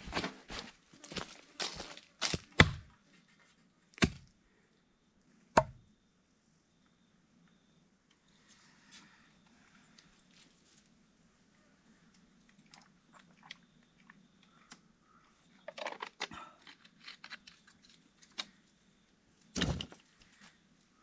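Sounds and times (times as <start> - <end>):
plastic bottle crinkling: 15.6 - 17.6.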